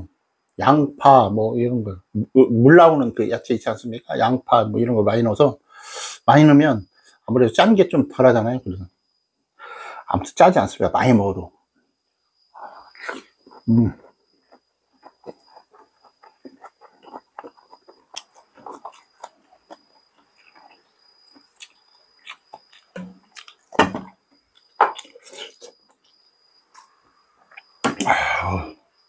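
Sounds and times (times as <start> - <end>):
chewing and mouth smacks: 13.1 - 23.8, 24.5 - 28.0.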